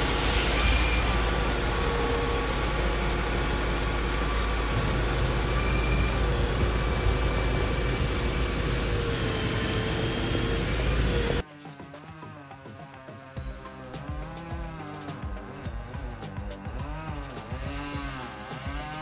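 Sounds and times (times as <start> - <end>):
heavy pouring rain: 0.0 - 11.4
truck engine running: 0.0 - 11.4, 13.4 - 19.0.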